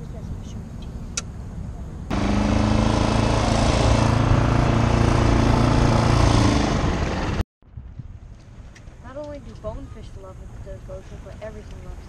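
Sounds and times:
outboard motor running: 2.1 - 7.4.

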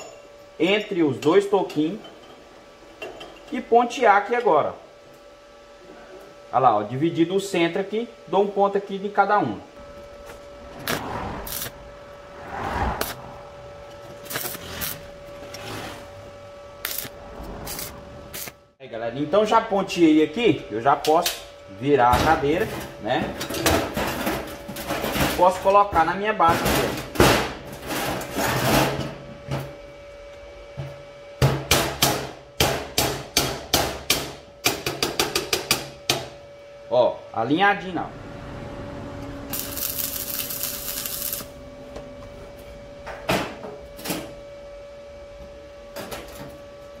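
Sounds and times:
arc welding crackle: 10.3 - 12.0, 13.0 - 13.2, 13.9 - 16.0, 16.8 - 18.6, 39.5 - 41.6
metal scraping and rubbing: 10.7 - 18.6.

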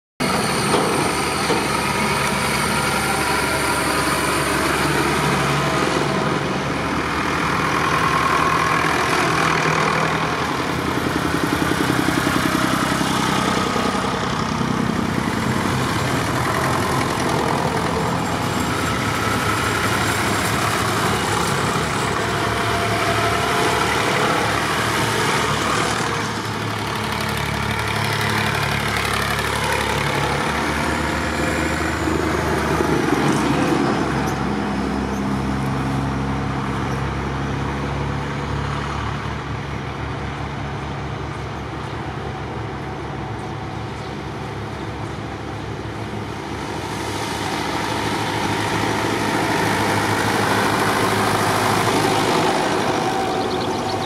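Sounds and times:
tractors driving past: 0.2 - 54.0.

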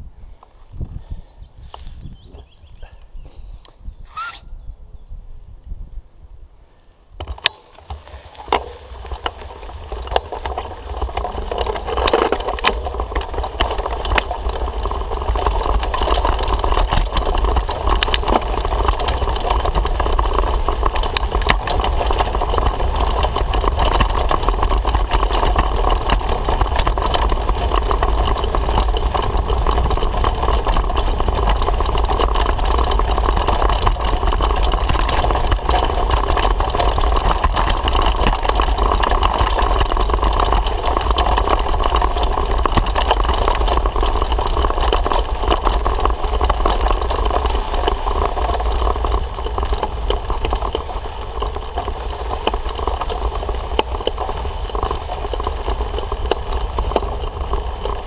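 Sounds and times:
bicycle tyres rumbling: 0.0 - 4.4, 5.3 - 58.0
wind rushing over microphone: 0.0 - 7.3
bike rattles and knocks: 7.1 - 58.0.

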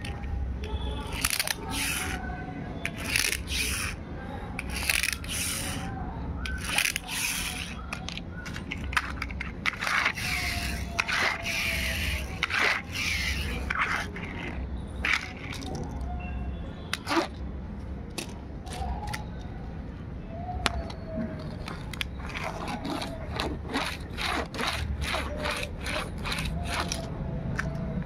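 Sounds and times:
plastic toys scraping on concrete: 1.0 - 4.0, 4.6 - 5.9, 6.5 - 15.9, 21.4 - 27.1.

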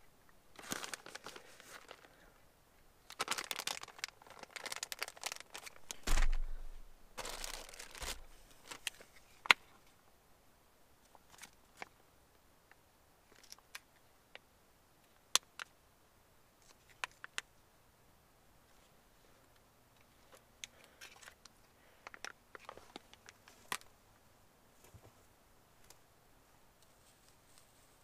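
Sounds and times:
plastic packet clicking and crinkling: 0.6 - 2.2, 3.0 - 6.6, 7.2 - 9.6, 13.3 - 13.9, 15.3 - 15.7, 16.6 - 17.5, 20.3 - 23.9.

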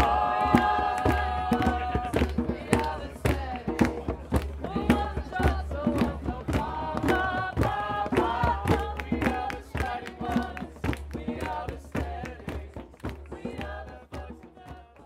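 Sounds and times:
group of voices singing: 0.0 - 15.0
sharp percussive beat: 0.0 - 15.0.

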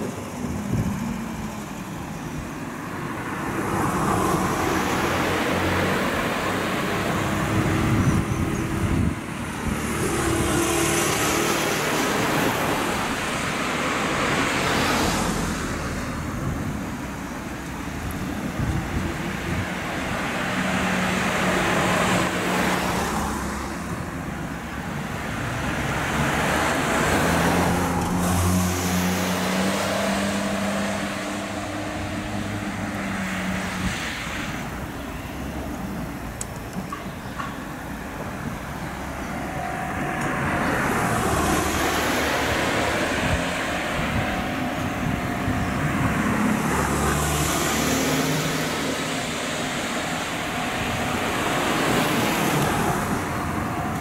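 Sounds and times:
low traffic rumble: 0.0 - 54.0
motor vehicles passing: 0.0 - 54.0.

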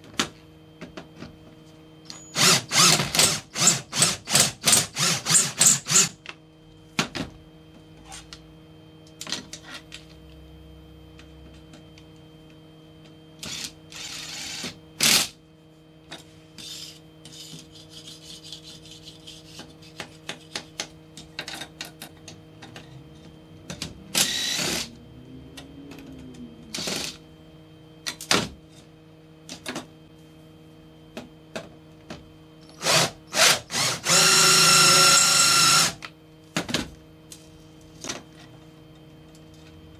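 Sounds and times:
drill cutting steel: 2.1 - 6.2, 13.4 - 15.3, 24.2 - 24.9, 32.7 - 36.0.

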